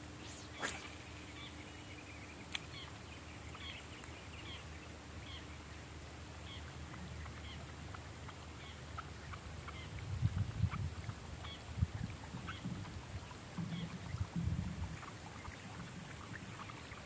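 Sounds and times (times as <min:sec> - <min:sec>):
high-pitched whine: 0:00.0 - 0:02.2
sharp click: 0:00.2 - 0:01.0
bird chirps: 0:00.2 - 0:05.5
low wind rumble: 0:09.4 - 0:16.6.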